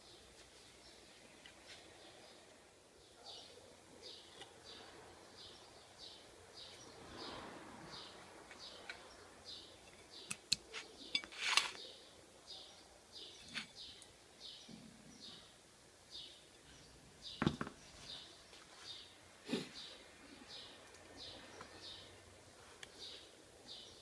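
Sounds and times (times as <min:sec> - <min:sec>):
small bird chirping: 0:03.1 - 0:19.2.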